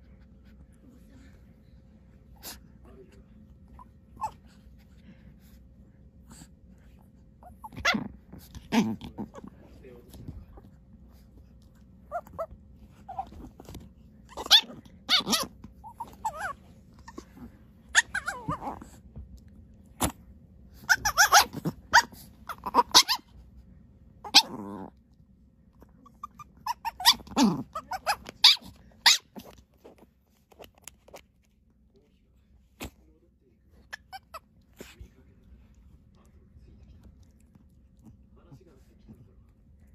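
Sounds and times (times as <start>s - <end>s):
dog growling: 7.4s - 9.8s, 12.1s - 19.0s, 20.9s - 23.0s, 24.2s - 25.0s, 26.2s - 28.3s.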